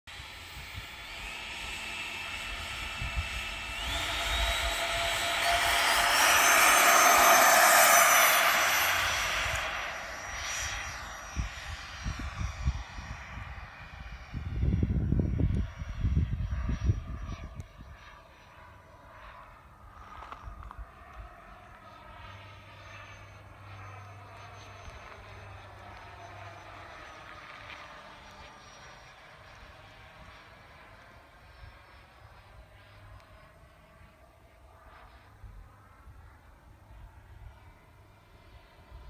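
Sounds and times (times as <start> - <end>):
jet fans whining: 0.1 - 12.6
wind rumble on microphone: 0.4 - 18.4.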